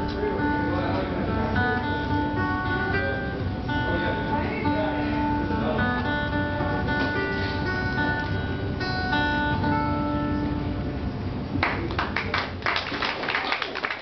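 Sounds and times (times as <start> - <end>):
acoustic guitar picking: 0.0 - 11.9
audience clapping: 11.6 - 14.0.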